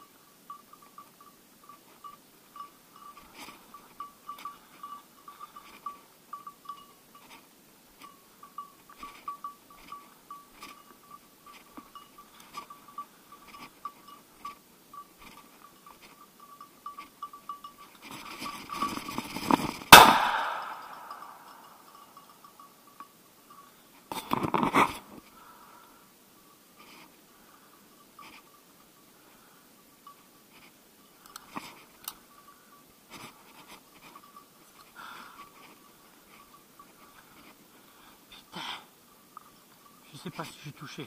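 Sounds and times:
brush rustling: 0.7 - 22.6
shotgun shot: 19.9 - 21.1.

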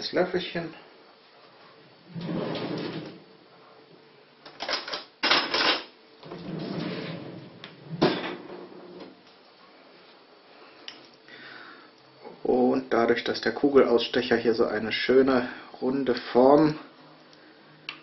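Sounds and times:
cutlery rustling and rattling: 4.5 - 5.9
cutlery clattering: 4.6 - 5.9.

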